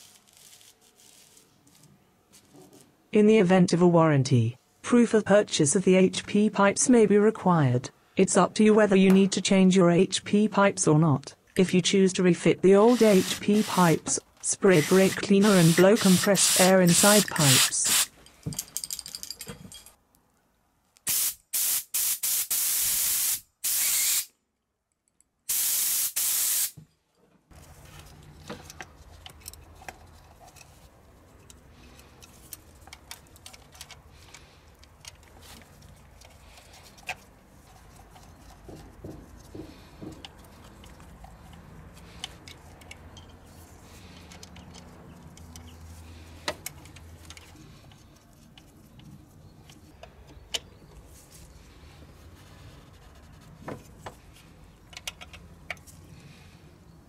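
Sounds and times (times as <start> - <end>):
faint clicks and knocks: 44.1 - 45.8.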